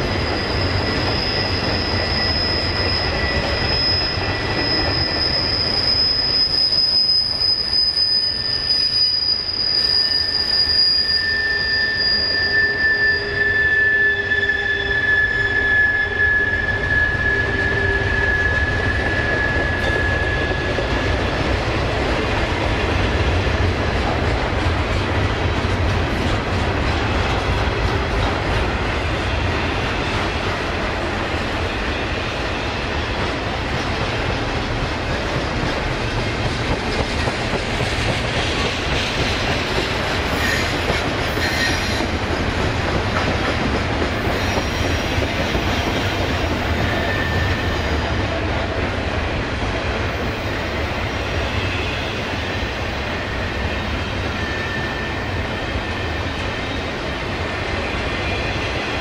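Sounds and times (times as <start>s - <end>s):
high wheel squeal: 0.0s - 21.4s, 38.6s - 42.1s, 44.1s - 48.1s, 50.2s - 56.9s
freight train wheels rumbling on rail: 0.0s - 59.0s.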